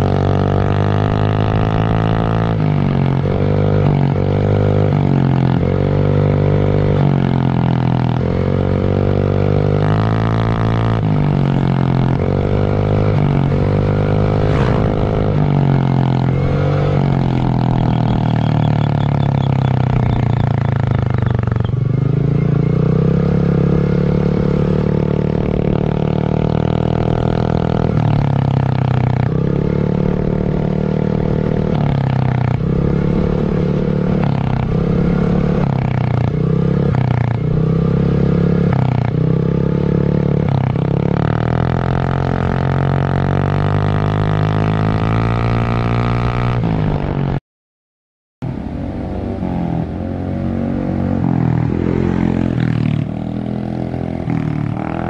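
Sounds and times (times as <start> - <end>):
scooter engine exhaust drone revving: 0.0 - 42.1.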